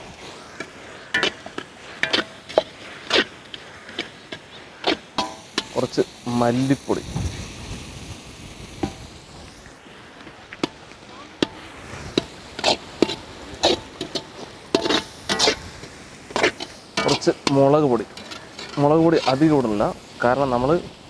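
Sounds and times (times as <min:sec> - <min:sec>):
metal ladle scraping iron pan: 0:00.3 - 0:05.8, 0:11.4 - 0:19.5.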